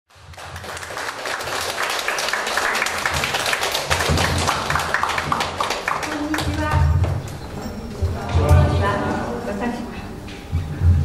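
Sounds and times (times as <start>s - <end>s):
audience applauding: 0.1s - 6.8s.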